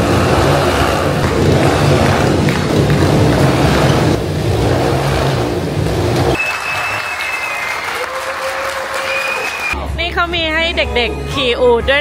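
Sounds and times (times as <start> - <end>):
motorcycle engines revving: 0.0 - 7.0
audience applause: 1.2 - 3.8, 6.3 - 9.8.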